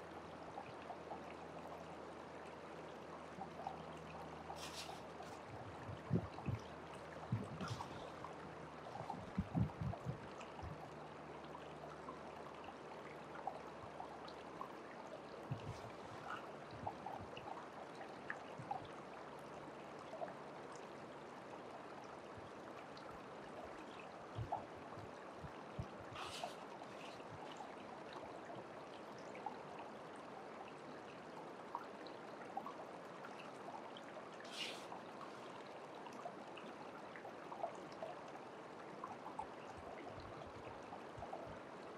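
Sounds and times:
stream water running: 0.0s - 41.9s
hissing splashes: 4.5s - 5.4s, 26.2s - 27.2s, 34.5s - 35.4s
soft knocks of scooping gravel: 4.6s - 5.4s.

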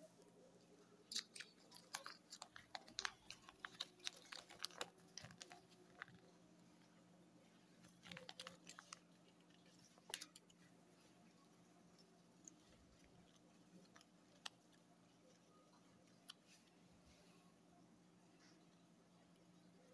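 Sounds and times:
paper crackling as unfolded: 1.8s - 6.3s, 7.8s - 10.5s.

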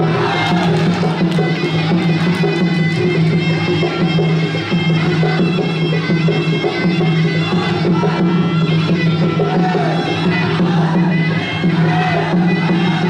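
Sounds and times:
steady percussion: 0.0s - 13.0s.

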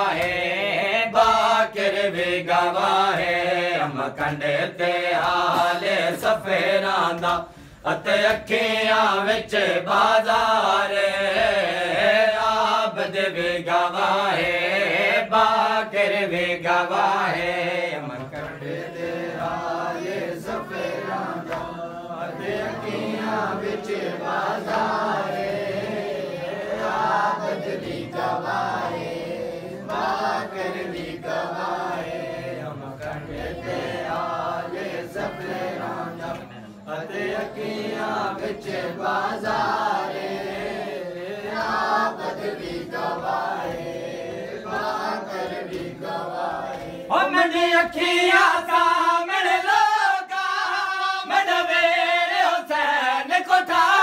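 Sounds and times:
rhythmic chest-beating strikes: 0.0s - 49.0s
men chanting in unison: 0.0s - 54.0s
person singing verse: 0.0s - 54.0s.

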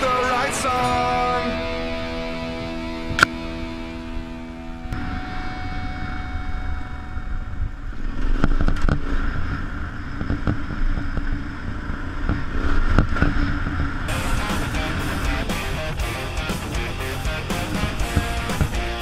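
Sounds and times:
motorcycle engine running: 14.1s - 19.0s.

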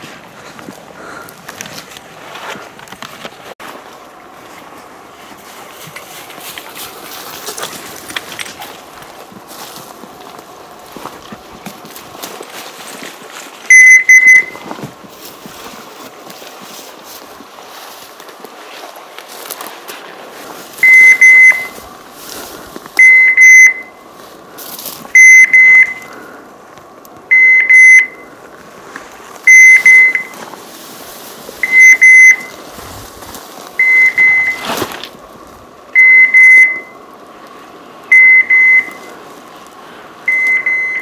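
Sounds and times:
faint brush and footsteps: 0.0s - 27.3s, 28.1s - 35.9s, 38.6s - 41.0s
dog collar high beeps: 13.7s - 14.7s, 20.8s - 21.8s, 23.0s - 24.0s, 25.1s - 26.1s, 27.3s - 28.3s, 29.5s - 30.4s, 31.6s - 32.6s, 33.8s - 34.7s, 36.0s - 37.0s, 38.1s - 39.1s, 40.3s - 41.0s.

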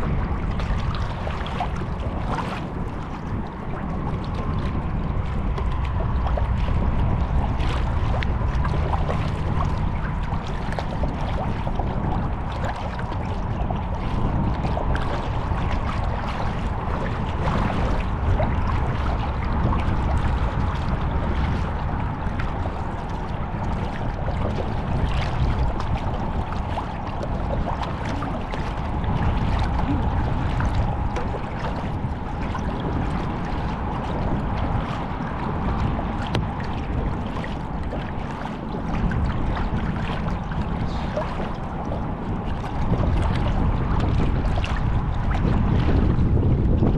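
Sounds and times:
paddle splashing in water: 0.0s - 46.9s
water lapping at hull: 0.0s - 46.9s
wind rumble on microphone: 0.0s - 46.9s.

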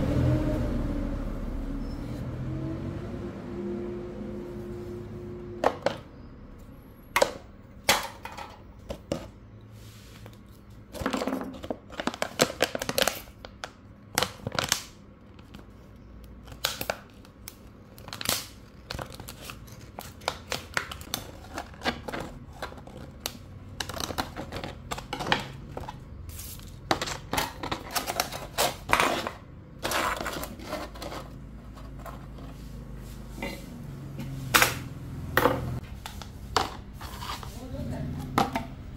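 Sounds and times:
plastic cups clicking and crinkling: 10.3s - 32.6s, 35.7s - 37.6s, 38.2s - 38.9s.

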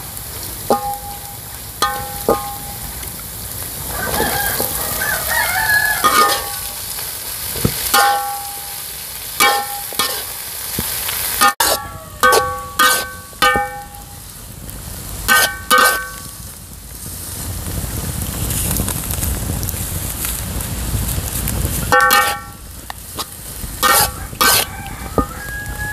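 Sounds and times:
steady sizzling: 0.0s - 25.9s
metal spatula scraping a wok: 0.6s - 3.0s, 4.1s - 4.8s, 5.8s - 10.4s, 11.2s - 14.2s, 15.3s - 16.4s, 21.9s - 25.9s
rooster crowing: 3.9s - 6.8s, 11.6s - 12.7s, 23.9s - 25.9s.

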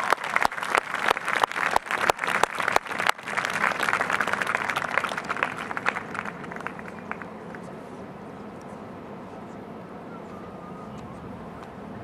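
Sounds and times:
crowd applauding: 0.0s - 7.3s
loud close hand claps: 0.0s - 7.3s.

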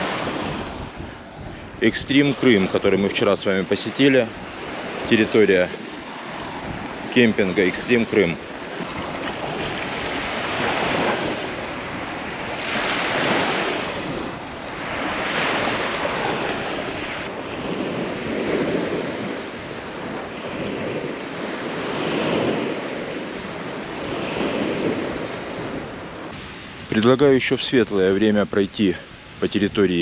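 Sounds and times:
wind on microphone: 0.0s - 28.1s
surf washing onto beach: 0.0s - 30.0s.

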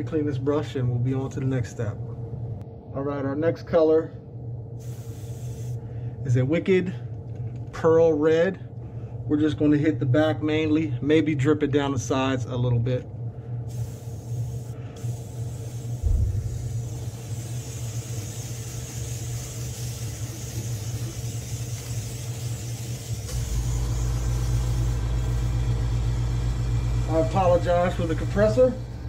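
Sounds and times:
air compressor humming: 4.7s - 29.0s
airbrush air hiss: 4.8s - 6.2s, 13.7s - 28.9s.

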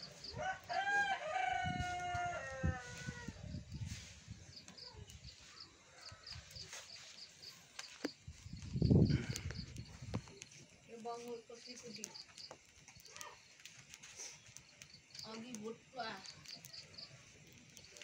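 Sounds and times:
rooster crowing: 0.2s - 3.4s.

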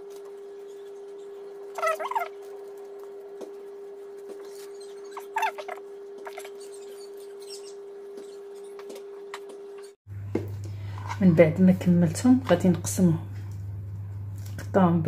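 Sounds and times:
short animal call: 1.8s - 2.3s, 5.2s - 6.5s.

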